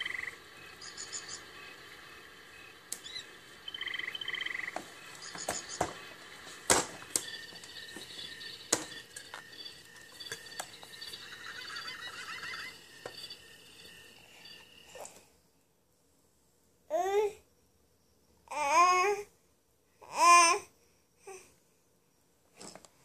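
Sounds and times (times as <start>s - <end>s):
short rapid trills: 7.0s - 15.0s.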